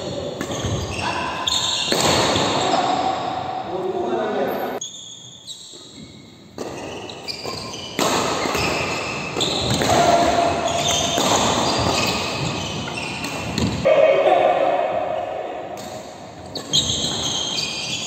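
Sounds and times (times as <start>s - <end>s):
shoes squeaking on court floor: 0.0s - 2.9s, 4.5s - 9.8s, 10.4s - 13.8s, 16.0s - 18.0s
rackets hitting shuttlecock: 1.8s - 2.9s, 6.6s - 13.8s.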